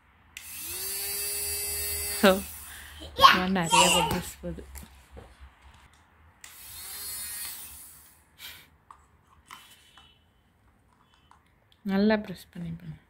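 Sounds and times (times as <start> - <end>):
toy fan motor whirring: 0.4 - 3.0, 6.4 - 8.2.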